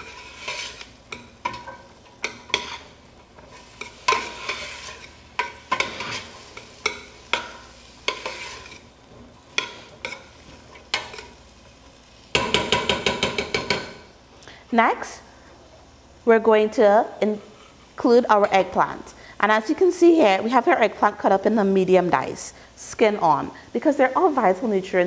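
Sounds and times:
utensil scraping metal pot: 0:00.0 - 0:08.9
faint sizzle in oil: 0:00.0 - 0:25.0.

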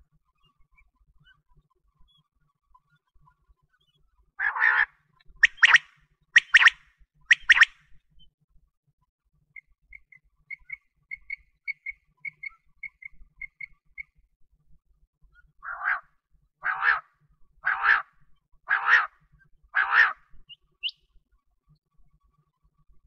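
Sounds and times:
quail calling: 0:04.4 - 0:07.8, 0:15.6 - 0:19.2, 0:19.8 - 0:21.0.

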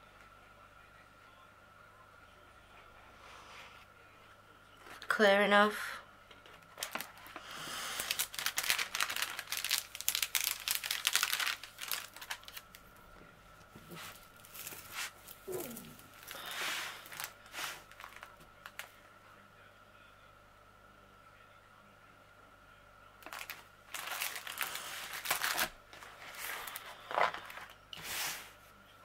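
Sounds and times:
plastic film crinkling: 0:06.5 - 0:13.0, 0:13.7 - 0:18.9, 0:23.2 - 0:27.8.

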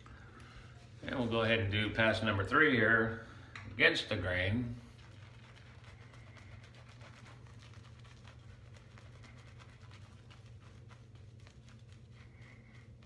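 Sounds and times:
steady low hum: 0:00.0 - 0:13.0
shaving brush scratchy strokes: 0:04.6 - 0:13.0.

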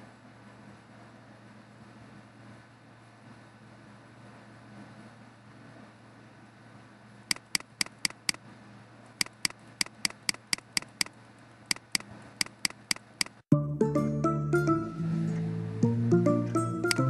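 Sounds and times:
computer mouse clicking: 0:07.3 - 0:08.4, 0:09.2 - 0:13.4
music: 0:13.5 - 0:17.0.

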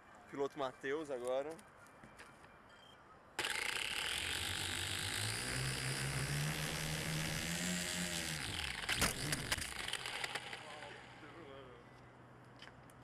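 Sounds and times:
drone motors and propellers whirring: 0:03.4 - 0:11.2.

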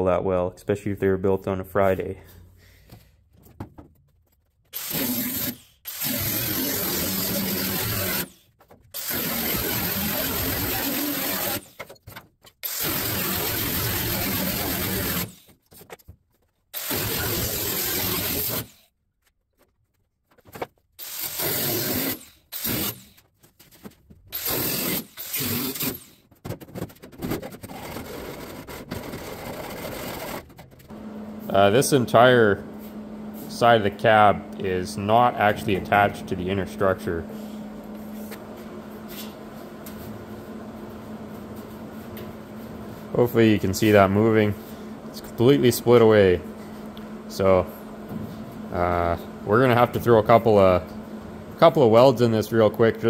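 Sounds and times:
power tool cutting sheet steel: 0:04.8 - 0:11.8, 0:12.6 - 0:15.4, 0:16.8 - 0:18.8, 0:21.0 - 0:23.2, 0:24.3 - 0:26.2, 0:27.6 - 0:30.5.

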